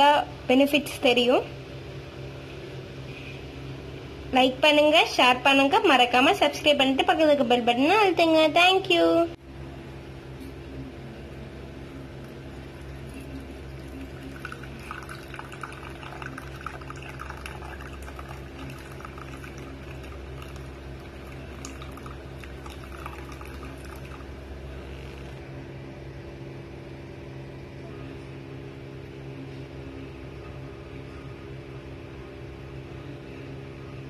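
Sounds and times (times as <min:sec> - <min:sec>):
liquid pouring into ceramic cup: 0:12.2 - 0:25.3.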